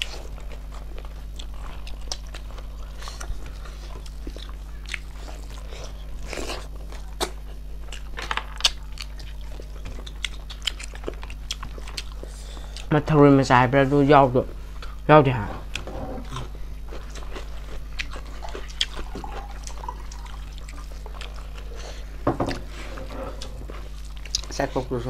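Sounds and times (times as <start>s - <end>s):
chewing and crunching: 0.0s - 25.0s.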